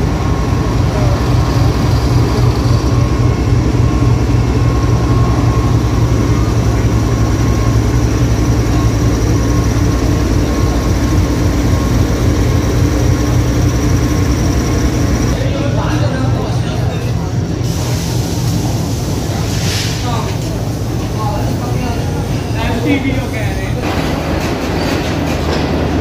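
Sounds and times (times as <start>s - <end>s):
diesel locomotive engine rumbling: 0.0s - 26.0s
train coaches rolling past: 0.0s - 26.0s.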